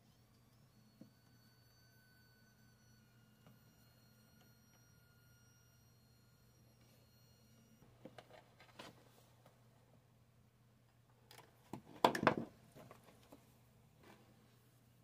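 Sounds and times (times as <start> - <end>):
electric nail drill whine: 0.0 - 7.9.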